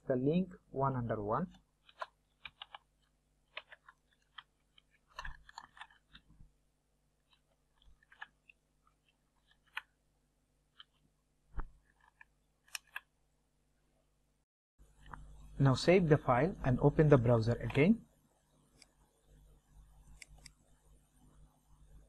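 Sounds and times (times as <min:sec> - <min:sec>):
computer keyboard keystrokes: 0:01.8 - 0:02.8.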